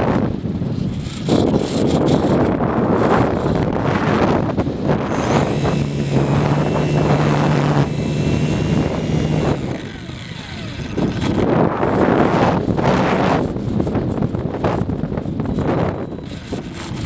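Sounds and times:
wind on microphone: 0.0s - 17.0s
model plane motor humming: 5.1s - 12.7s, 16.1s - 17.0s.

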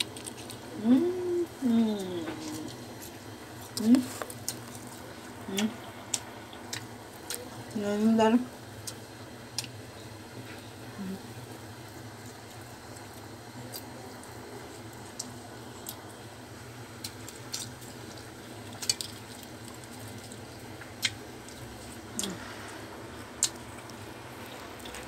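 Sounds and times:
faint low hum: 0.0s - 25.0s
soft wet squishes: 17.0s - 25.0s.

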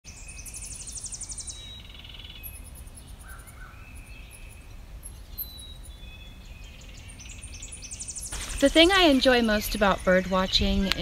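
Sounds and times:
high bird trill: 0.1s - 10.8s
songbirds singing and calling: 0.1s - 11.0s
bird chips and whistles: 7.6s - 10.6s.

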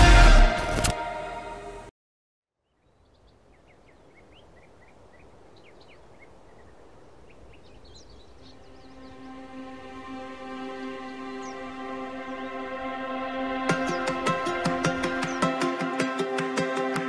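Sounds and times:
small birds chirping: 2.5s - 15.8s
soft outdoor hush: 2.6s - 15.8s
held music chord: 8.4s - 17.0s.

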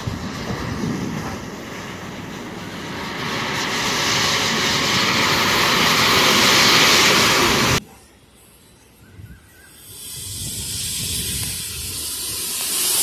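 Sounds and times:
matches igniting with hissing flame: 9.8s - 13.0s.

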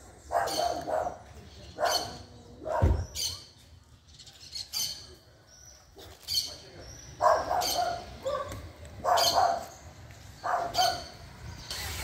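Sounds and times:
dog barking: 0.3s - 1.2s, 1.8s - 3.0s, 7.2s - 9.8s, 10.4s - 11.2s.

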